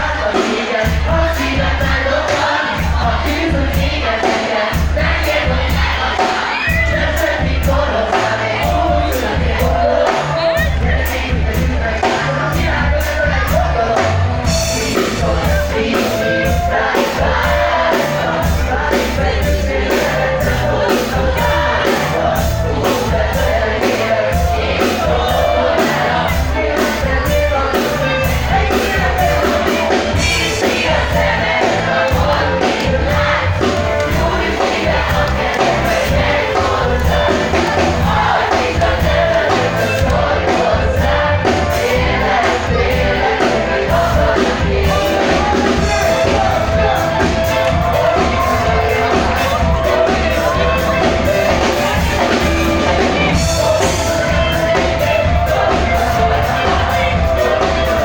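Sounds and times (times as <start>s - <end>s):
drums beating: 0.0s - 58.0s
live band playing: 0.0s - 58.0s
person singing: 0.0s - 58.0s.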